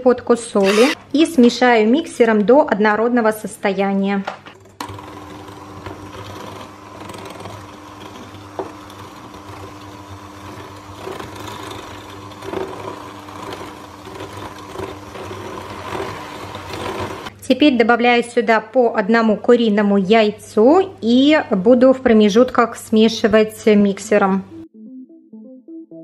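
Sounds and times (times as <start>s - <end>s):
electric hand mixer running: 0.6s - 1.1s, 4.8s - 17.3s.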